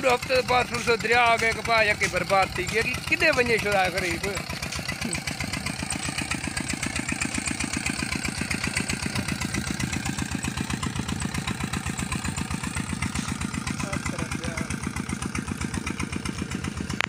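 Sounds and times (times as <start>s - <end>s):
diesel pump engine chugging: 0.0s - 17.0s.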